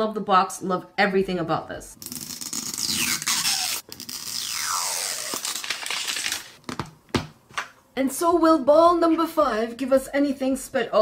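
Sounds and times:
plastic shrink wrap tearing: 2.0s - 6.6s.

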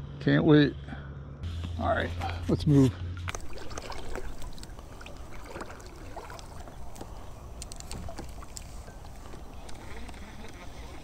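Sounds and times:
water splashes and drips: 3.1s - 10.6s.

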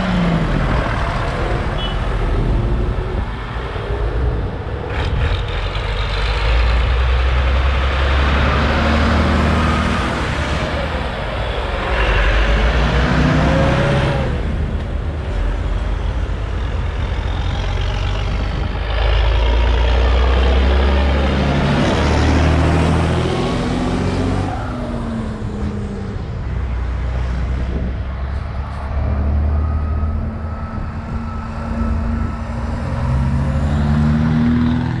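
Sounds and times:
tractor engines driving past: 0.0s - 35.0s
car engine passing: 27.4s - 35.0s.

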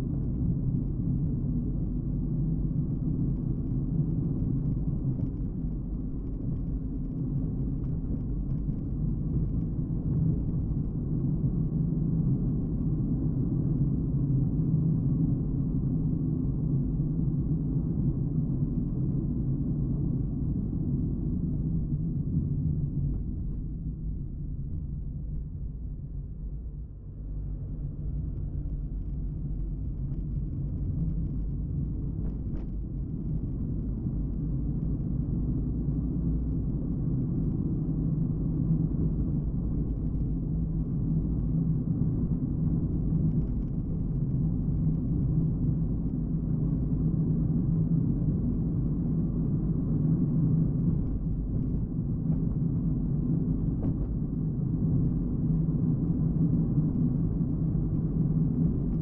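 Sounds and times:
car engine and tyres rumbling: 18.3s - 59.0s.

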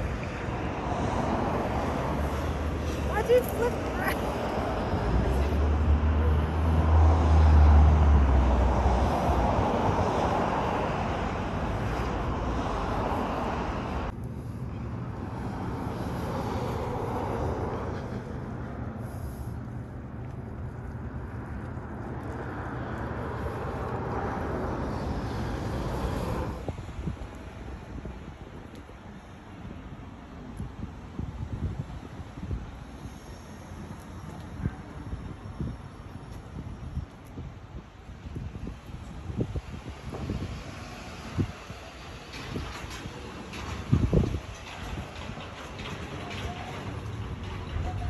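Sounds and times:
vehicle passing: 0.0s - 26.9s
traffic noise: 0.0s - 48.0s.

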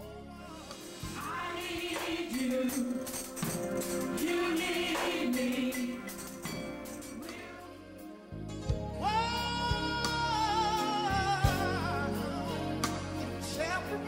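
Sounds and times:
gospel singing voices: 0.0s - 14.0s
shaken tambourine: 0.8s - 7.6s.

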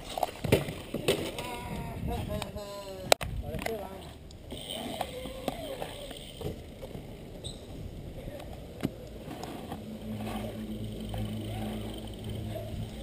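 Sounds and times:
bike tyres rolling on concrete: 0.0s - 13.0s.

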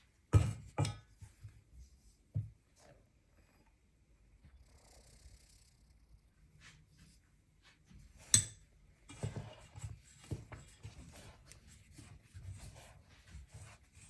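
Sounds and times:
spoon stirring dough in metal bowl: 0.2s - 2.6s, 7.9s - 14.0s.

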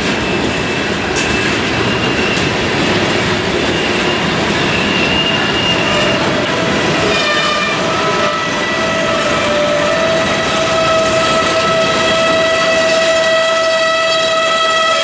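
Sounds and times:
train wheels rumbling on rail: 0.0s - 15.0s
high-pitched wheel squeal: 3.6s - 15.0s.

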